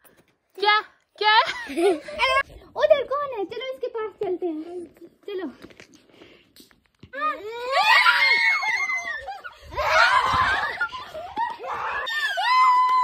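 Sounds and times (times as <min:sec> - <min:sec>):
children squealing with laughter: 0:07.3 - 0:13.0.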